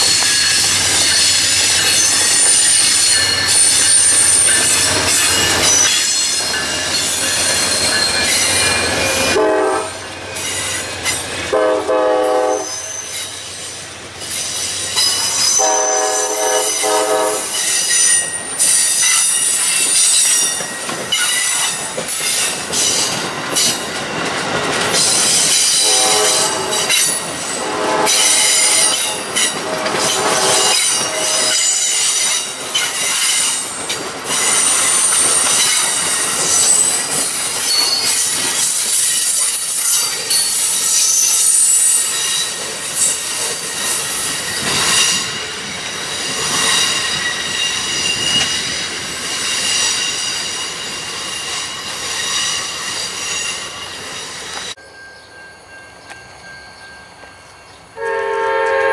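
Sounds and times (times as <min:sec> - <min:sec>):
train wheels squealing: 0:00.0 - 0:09.4, 0:10.0 - 0:11.5, 0:12.5 - 0:24.0, 0:24.8 - 0:58.0
train horn: 0:09.2 - 0:10.0, 0:11.5 - 0:13.1, 0:15.5 - 0:17.6, 0:25.7 - 0:32.0, 0:58.0 - 0:58.9.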